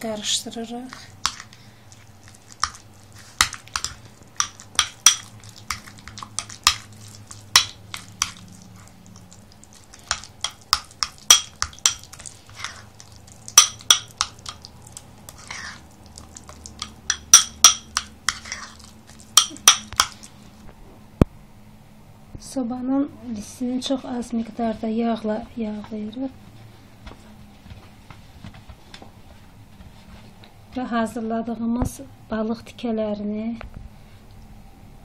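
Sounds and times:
spoon scraping a bowl: 0.9 - 20.3.

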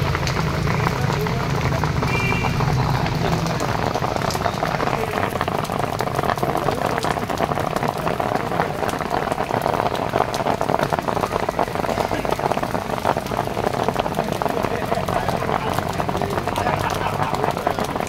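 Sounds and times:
rain patter: 0.0 - 18.0.

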